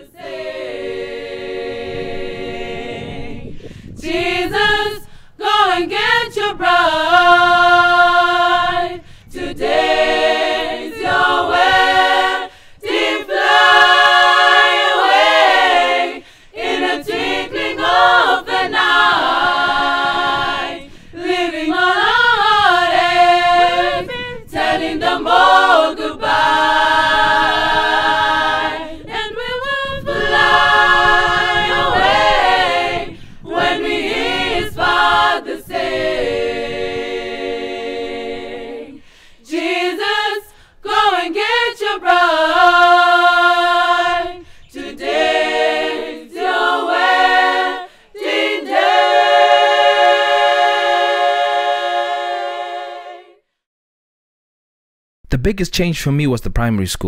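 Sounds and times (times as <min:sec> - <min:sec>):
girls' choir singing a cappella: 0:00.0 - 0:53.4.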